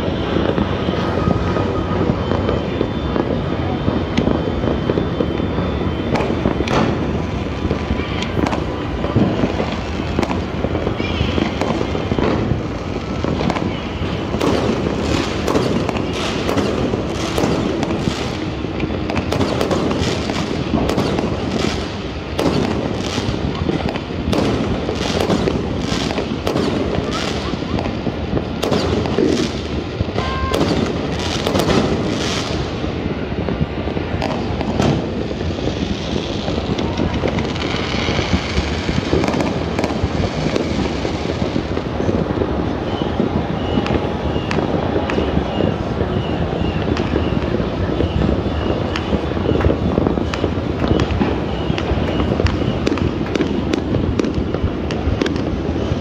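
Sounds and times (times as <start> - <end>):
distant fireworks bangs: 0.0 - 56.0
sharp firework cracks: 0.0 - 56.0.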